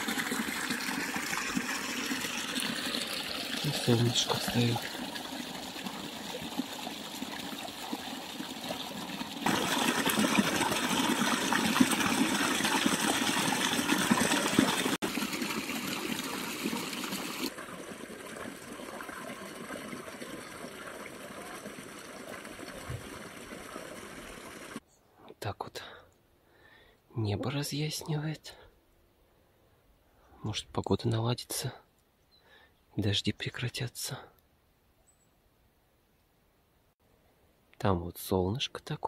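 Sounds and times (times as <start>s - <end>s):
brook rushing and splashing: 0.0s - 24.8s.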